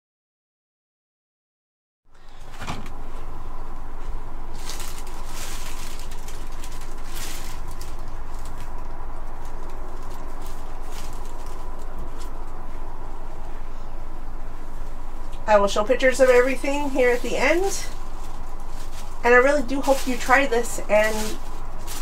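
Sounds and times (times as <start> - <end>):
steady low hum: 2.1 - 22.0
tissue paper rustling and crinkling: 4.0 - 12.8, 15.8 - 22.0.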